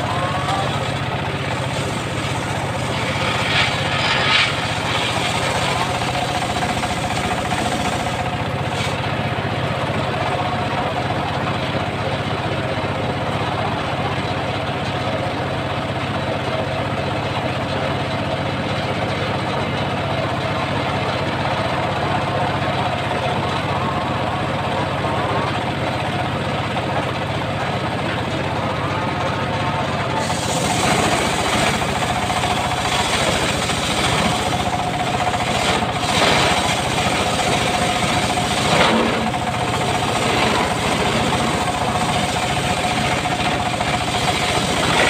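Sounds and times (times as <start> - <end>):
circular saw blade whine: 0.0 - 9.0
engine running: 0.0 - 45.0.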